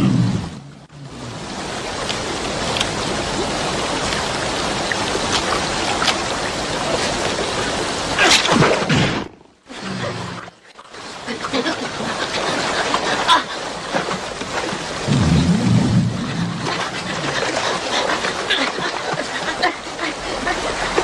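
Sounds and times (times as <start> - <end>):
river water rushing over rocks: 1.1 - 8.9
water swoosh: 12.1 - 19.8.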